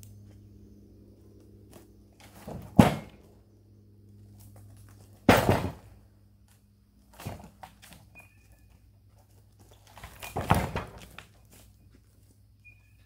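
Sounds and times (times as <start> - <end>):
wooden boards knocking and thudding: 2.2 - 3.2, 5.2 - 5.9, 10.0 - 11.2.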